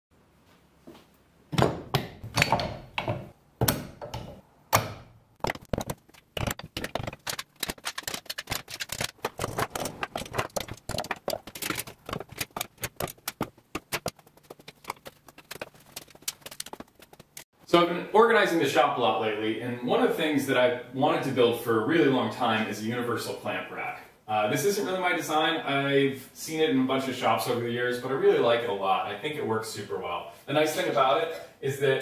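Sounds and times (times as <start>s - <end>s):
metal clamps clunking into rack: 1.6s - 5.0s
clamps clicking and rattling: 2.3s - 4.4s, 5.4s - 14.1s.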